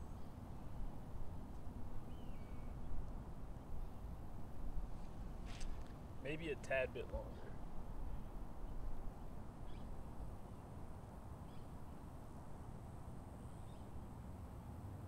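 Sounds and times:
faint bird chirps: 0:02.0 - 0:03.0, 0:07.3 - 0:10.7, 0:11.4 - 0:12.0.

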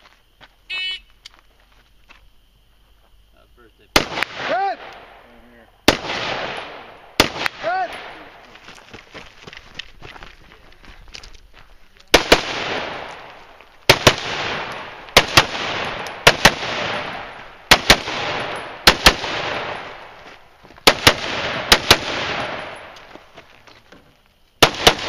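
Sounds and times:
rifle shots: 0:03.9 - 0:05.2, 0:05.9 - 0:08.4, 0:12.1 - 0:20.2, 0:20.8 - 0:23.0, 0:24.6 - 0:25.0
gunshot echo: 0:04.0 - 0:05.3, 0:05.9 - 0:08.4, 0:12.1 - 0:20.2, 0:20.8 - 0:23.0, 0:24.6 - 0:25.0.

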